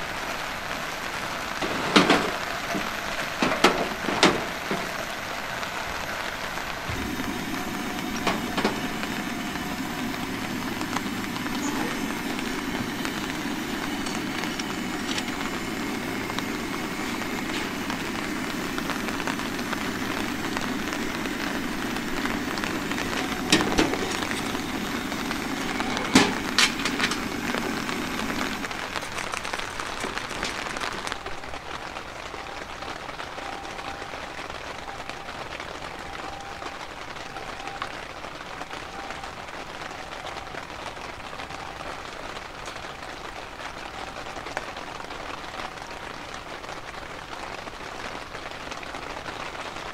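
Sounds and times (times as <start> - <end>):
falling rain: 0.0 - 49.9
camp stove burner rushing: 1.1 - 31.4.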